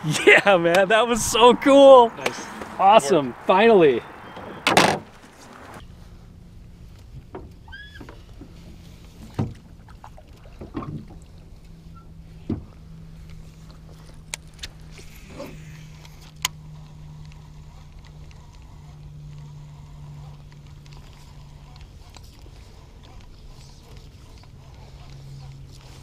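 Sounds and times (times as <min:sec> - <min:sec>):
fishing reel whirring: 0:13.4 - 0:26.0.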